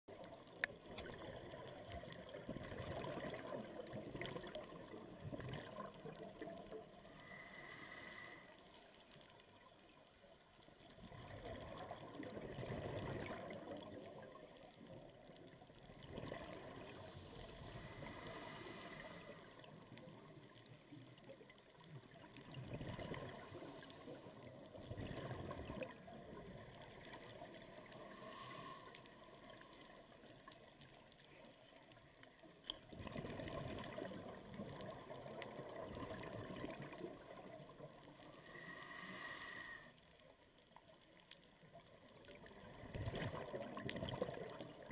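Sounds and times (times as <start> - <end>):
bubbling exhaust underwater: 0.1 - 8.4, 10.9 - 20.6, 21.8 - 29.7, 32.8 - 39.9, 42.3 - 44.9
hissing regulator inhales: 6.8 - 9.1, 16.9 - 19.9, 27.0 - 30.4, 38.1 - 40.1.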